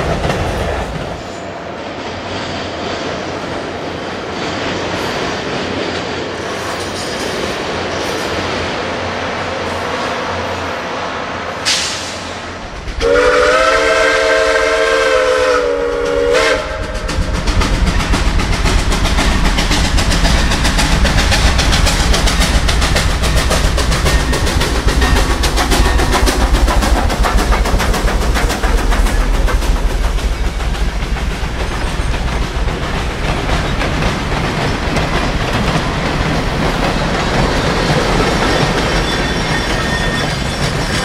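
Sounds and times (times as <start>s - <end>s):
freight cars clattering on rails: 0.0s - 10.4s, 15.8s - 41.0s
locomotive passing under power: 0.0s - 41.0s
steam locomotive whistle: 13.0s - 17.2s.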